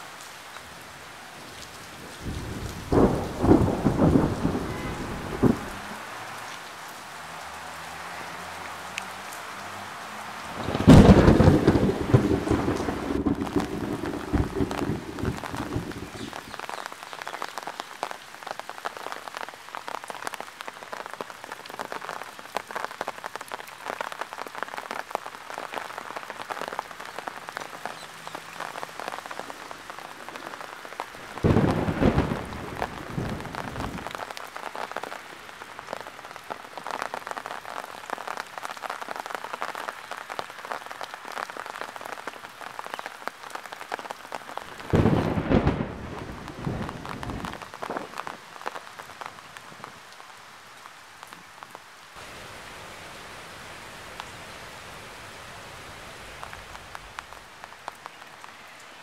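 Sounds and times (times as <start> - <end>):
heavy rain on lawn and paving: 0.0 - 59.0
low rumbles of thunder: 2.2 - 5.8, 10.6 - 16.3, 31.3 - 34.1, 44.8 - 48.1.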